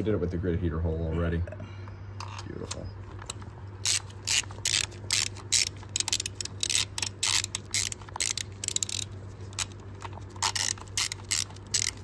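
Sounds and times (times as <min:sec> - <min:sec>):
socket ratchet clicking: 0:03.2 - 0:12.0.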